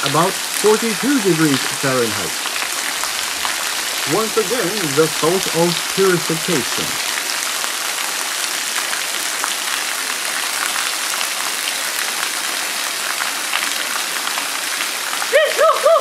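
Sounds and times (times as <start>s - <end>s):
waterfall pouring into stream: 0.0s - 16.0s.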